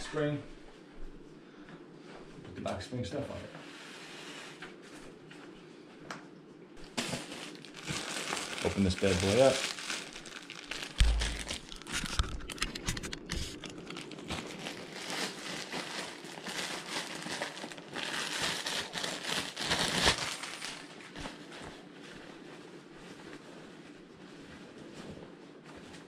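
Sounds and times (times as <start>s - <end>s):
plastic packaging crinkling: 6.8s - 21.6s.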